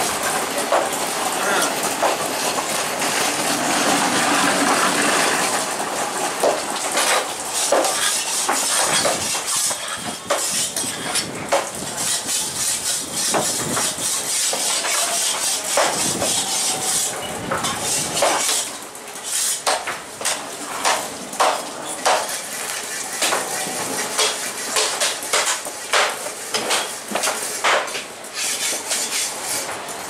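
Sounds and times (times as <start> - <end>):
knife scraping fish scales: 7.0 - 11.3, 11.9 - 17.1, 28.4 - 29.7.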